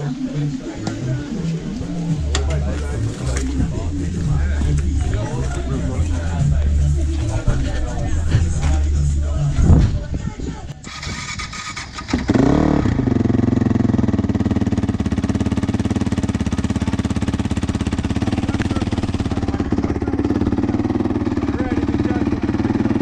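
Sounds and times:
motorcycle engine idling: 10.9 - 23.0.

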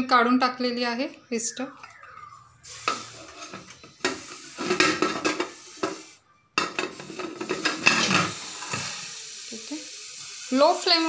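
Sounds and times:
metal lid clinking and scraping: 2.9 - 9.0.

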